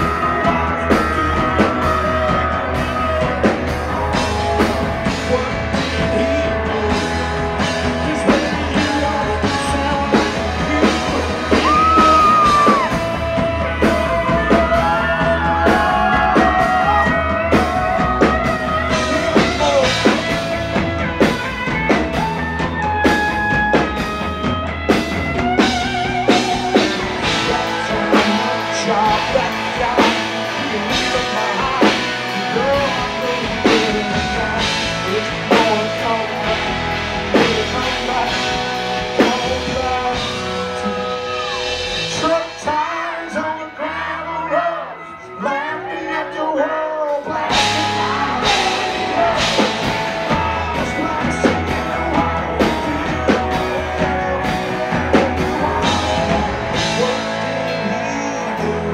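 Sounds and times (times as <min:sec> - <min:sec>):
country band playing: 0:00.0 - 0:58.9
man singing: 0:00.0 - 0:58.9.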